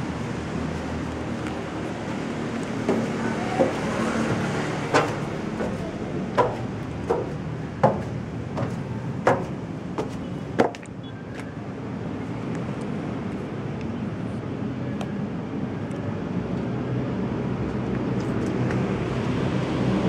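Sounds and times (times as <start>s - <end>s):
footsteps on metal stairs: 0.0s - 11.0s.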